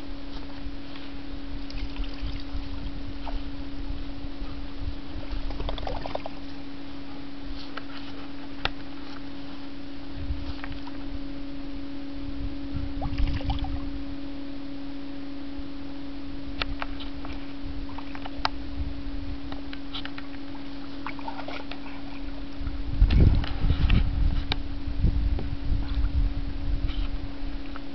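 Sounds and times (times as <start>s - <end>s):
steady low hum: 0.0s - 27.9s
water splashing in a paddling pool: 0.5s - 4.0s, 5.0s - 6.7s, 13.0s - 13.8s, 19.9s - 22.8s.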